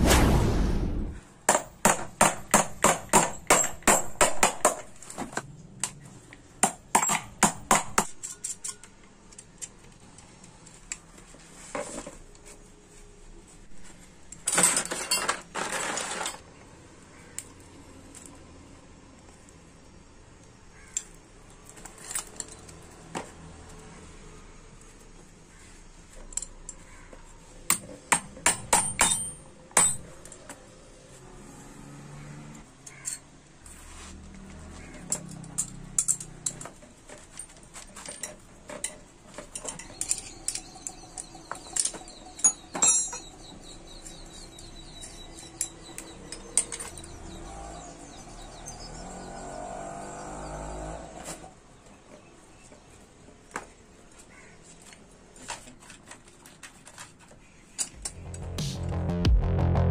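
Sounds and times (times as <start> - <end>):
scraping noise: 0.0 - 1.2.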